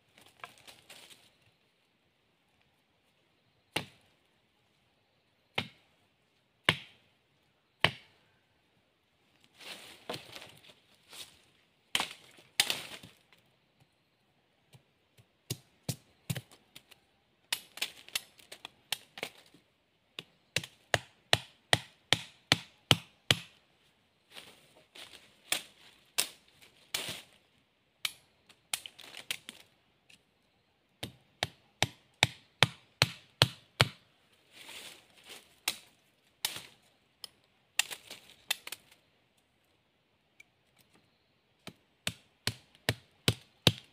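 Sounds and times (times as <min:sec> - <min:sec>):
machete chopping bamboo: 0:03.7 - 0:04.0, 0:05.5 - 0:05.8, 0:06.6 - 0:07.0, 0:07.8 - 0:08.1, 0:11.9 - 0:13.1, 0:17.5 - 0:19.5, 0:20.2 - 0:23.6, 0:31.0 - 0:34.0, 0:35.6 - 0:36.8, 0:41.6 - 0:43.9.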